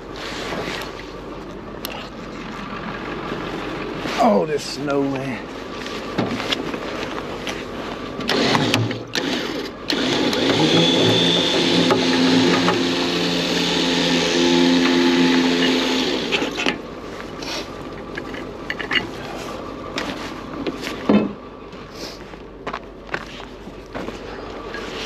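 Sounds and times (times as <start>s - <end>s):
winch whining: 8.2s - 16.8s
metal clanks and handling knocks: 17.9s - 19.3s, 20.0s - 21.4s.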